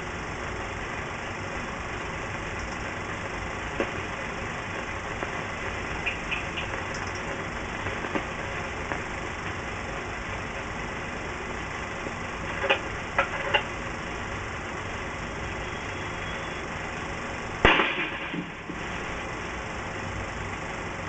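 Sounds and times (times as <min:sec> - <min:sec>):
film soundtrack hiss: 0:00.0 - 0:21.0
cannon firing: 0:17.6 - 0:18.8.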